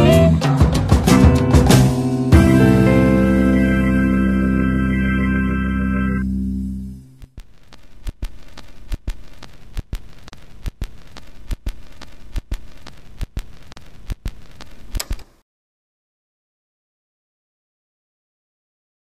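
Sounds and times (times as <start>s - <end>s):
sharp clicks in pairs: 7.3s - 15.4s
steady hiss: 7.4s - 15.4s.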